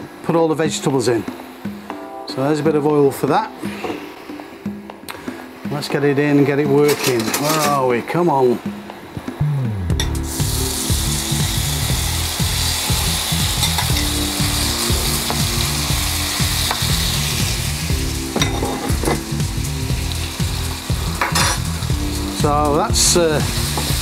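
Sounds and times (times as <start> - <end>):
meat sizzling in a wok: 10.0 - 24.0.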